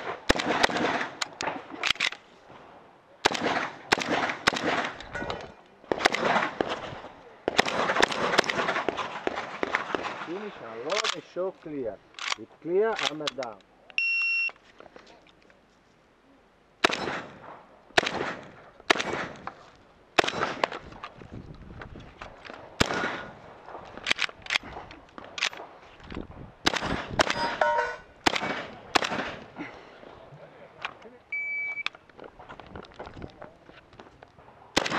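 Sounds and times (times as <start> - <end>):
shotgun firing rapid shots: 0.0 - 2.0, 3.2 - 5.0, 5.9 - 6.9, 7.5 - 10.3, 16.8 - 19.4, 20.2 - 20.8, 22.8 - 24.2, 26.6 - 29.5
steel targets ringing: 27.3 - 28.1
shot timer beep: 31.3 - 31.9.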